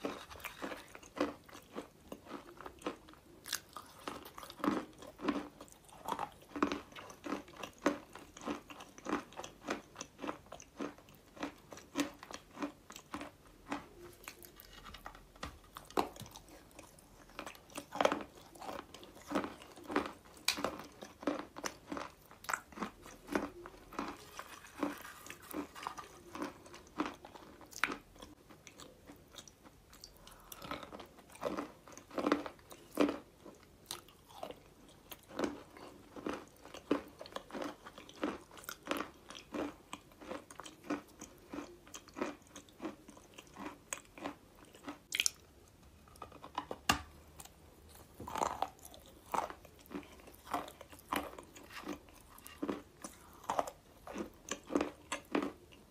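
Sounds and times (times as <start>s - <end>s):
crunchy chewing: 0.0s - 55.9s.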